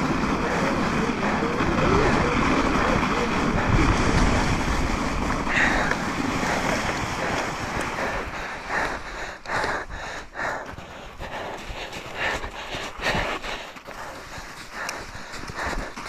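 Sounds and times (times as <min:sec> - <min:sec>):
wind rushing over microphone: 0:00.0 - 0:10.4
bike tyres through soft snow: 0:00.0 - 0:16.0
short crunching bursts: 0:00.0 - 0:16.0.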